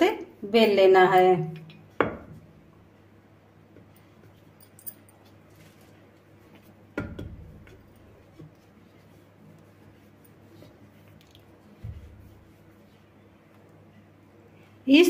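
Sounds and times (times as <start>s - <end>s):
dough rolling faint rubbing: 7.7s - 13.8s.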